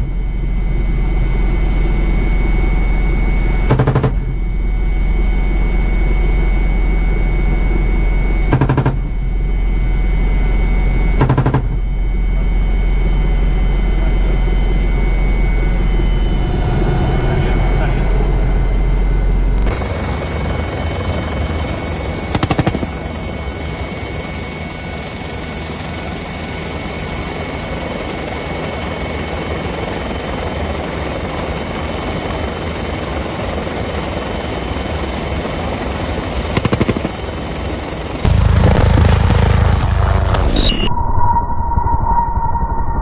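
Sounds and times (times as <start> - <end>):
deep helicopter rotor beat: 0.0 - 40.9
helicopter turbine and rotor: 0.0 - 40.9
cannon firing bursts: 3.7 - 4.4, 8.5 - 9.2, 19.6 - 23.2, 36.5 - 37.4, 38.2 - 40.6.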